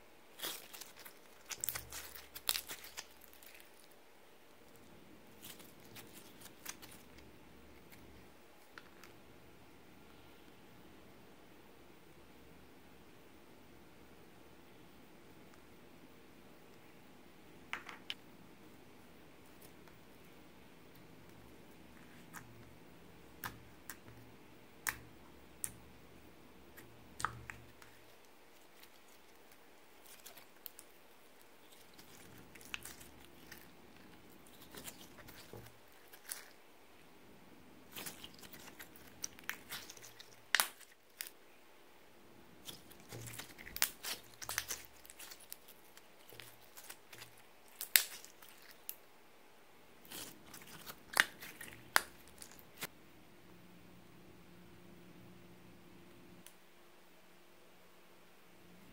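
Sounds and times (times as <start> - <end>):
slime kneaded by hand: 0.3 - 4.0, 4.6 - 9.1, 26.7 - 36.6, 37.8 - 41.4, 42.5 - 49.0, 50.0 - 52.9.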